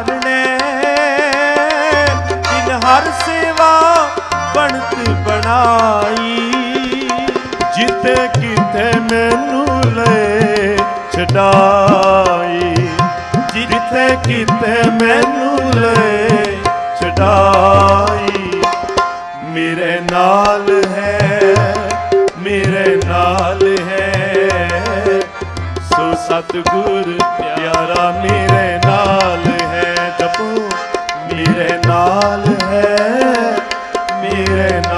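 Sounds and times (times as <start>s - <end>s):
tabla beat: 0.0s - 34.9s.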